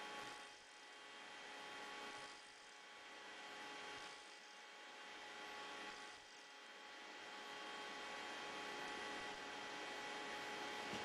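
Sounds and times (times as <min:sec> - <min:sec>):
mechanical hum with held tones: 0:00.0 - 0:11.0.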